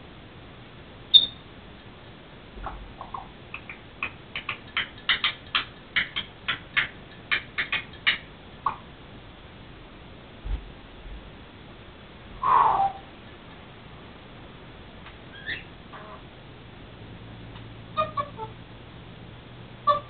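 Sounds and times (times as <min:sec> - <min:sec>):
parrot high whistle squeak: 0:01.1 - 0:01.4, 0:12.4 - 0:13.1, 0:15.3 - 0:15.7
parrot squeaky chirps: 0:01.1 - 0:01.4, 0:12.4 - 0:13.1, 0:15.3 - 0:16.2, 0:18.0 - 0:18.6.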